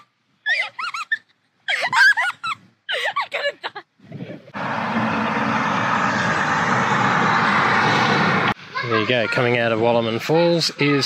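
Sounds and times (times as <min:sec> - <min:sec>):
children squealing and laughing: 0:00.0 - 0:03.8, 0:08.6 - 0:11.0
steady rushing noise: 0:04.4 - 0:10.9.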